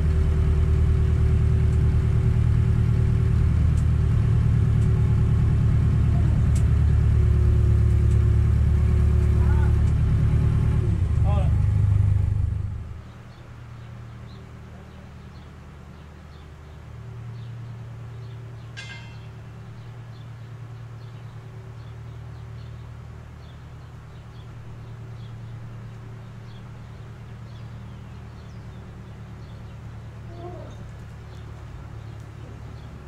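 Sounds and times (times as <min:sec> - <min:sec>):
engine idling: 0:00.0 - 0:13.2
small birds chirping: 0:12.9 - 0:33.0
sharp bird call: 0:18.8 - 0:19.4.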